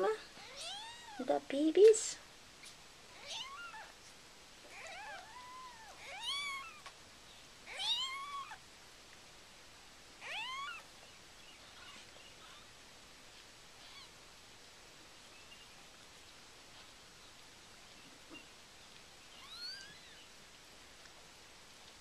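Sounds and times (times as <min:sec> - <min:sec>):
kittens mewing: 0:04.7 - 0:06.9, 0:07.7 - 0:08.6, 0:10.2 - 0:10.8.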